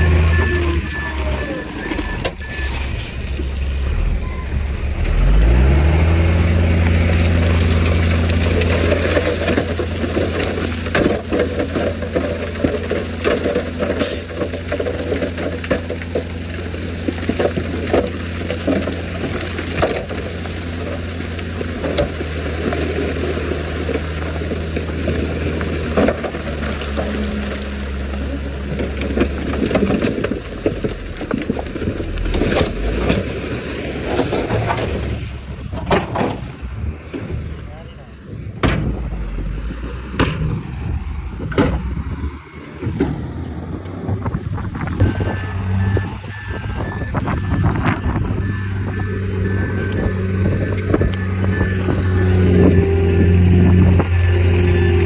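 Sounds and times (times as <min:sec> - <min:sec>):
heavy diesel engines working: 0:00.0 - 0:55.0
rock crunching and clattering: 0:04.8 - 0:37.4.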